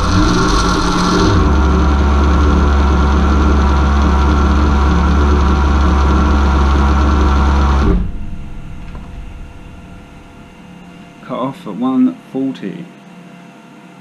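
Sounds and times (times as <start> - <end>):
motor spinning down: 0.0 - 11.1
motor humming and whining: 0.0 - 11.2.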